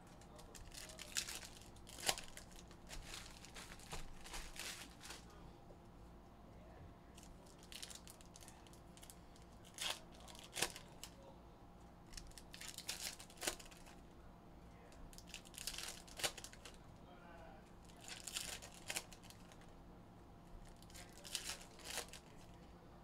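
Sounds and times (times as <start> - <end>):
foil wrapper crinkling and tearing: 0.1 - 5.4, 7.2 - 11.2, 12.1 - 14.0, 15.1 - 16.8, 17.9 - 19.7, 20.6 - 22.6.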